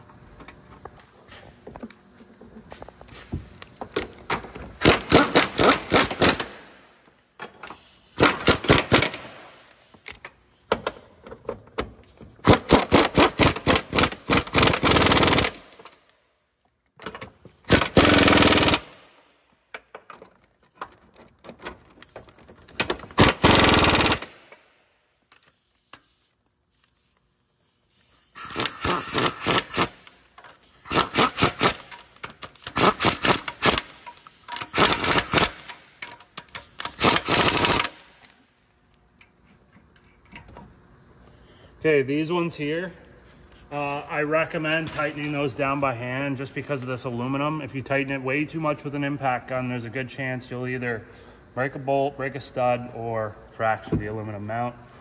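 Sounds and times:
power tool rapid clicking: 0:04.8 - 0:06.6, 0:08.2 - 0:09.4, 0:12.4 - 0:15.8, 0:17.7 - 0:19.0, 0:22.8 - 0:24.6, 0:28.4 - 0:30.1, 0:30.8 - 0:38.2.

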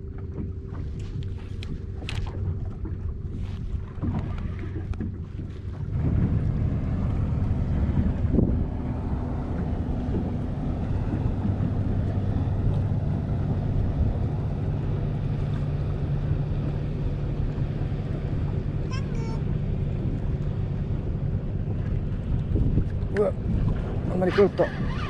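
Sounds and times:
outboard motor running: 0:00.0 - 0:25.0
wind buffeting microphone: 0:00.0 - 0:25.0.

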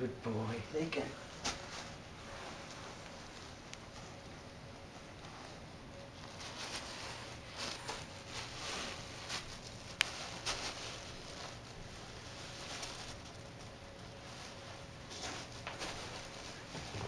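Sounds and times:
paper rustling and crinkling: 0:04.9 - 0:17.0.

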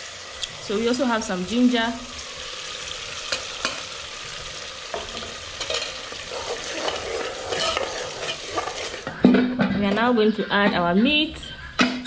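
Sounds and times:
soup bubbling and sizzling: 0:00.0 - 0:09.6
wooden spoon scraping pot: 0:05.6 - 0:09.1.

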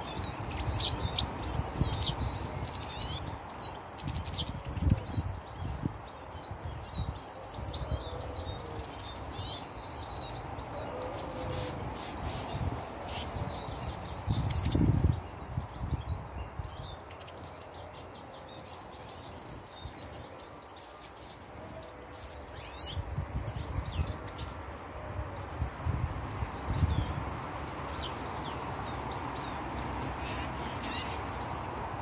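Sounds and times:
finches chirping: 0:26.3 - 0:31.7.

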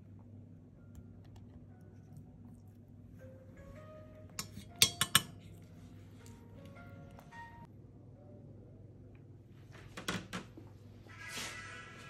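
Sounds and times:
forceps clinking on metal dish: 0:04.4 - 0:05.4.

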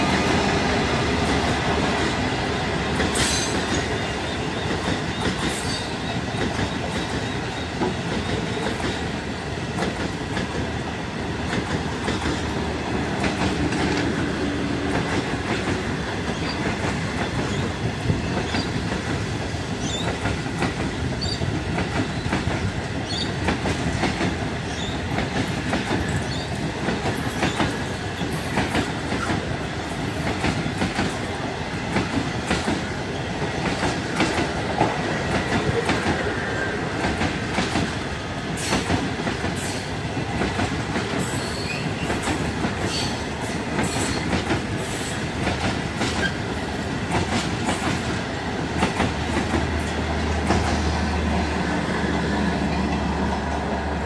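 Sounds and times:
train wheels rumbling on rail: 0:00.0 - 0:54.0
wheels clicking on rail joints: 0:11.4 - 0:51.4.

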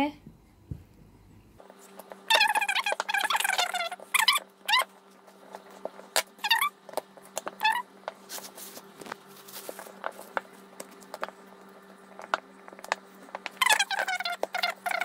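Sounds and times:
steady low hum: 0:00.0 - 0:15.0
animal chirping calls: 0:02.3 - 0:04.9.

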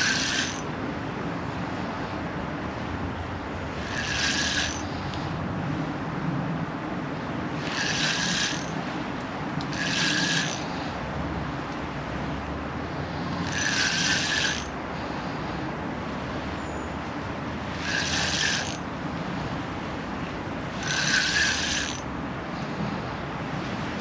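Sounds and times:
fishing reel gears rattling: 0:00.0 - 0:00.7, 0:03.7 - 0:05.0, 0:07.6 - 0:09.0, 0:09.6 - 0:10.8, 0:13.4 - 0:14.8, 0:17.7 - 0:18.8, 0:20.7 - 0:22.1.

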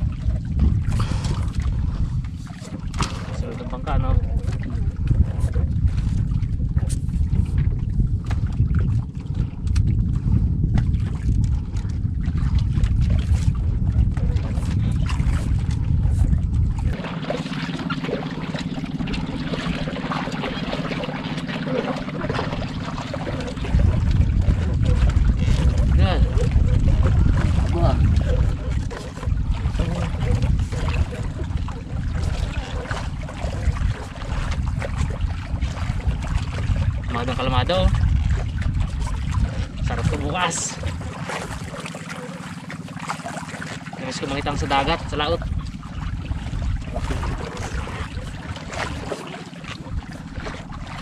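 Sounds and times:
boat engine rumbling: 0:00.0 - 0:51.0
water splashes: 0:00.0 - 0:51.0
wind buffeting microphone: 0:00.0 - 0:51.0.

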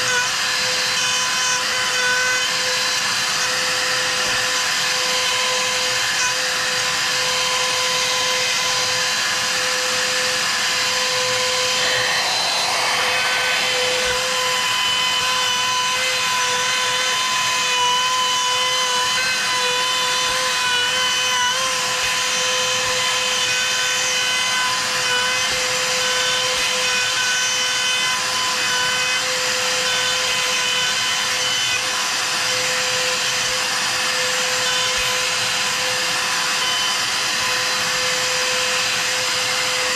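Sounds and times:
router whining: 0:00.0 - 0:26.0.

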